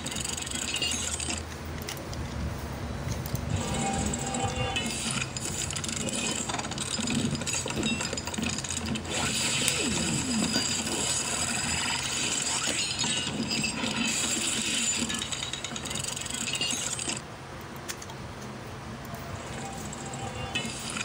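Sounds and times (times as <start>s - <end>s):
plastic toy joints clicking: 0.0s - 2.4s.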